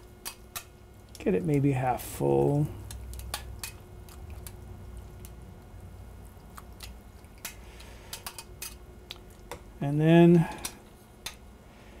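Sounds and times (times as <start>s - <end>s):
wet pulp squishing and dripping: 0.4s - 8.0s.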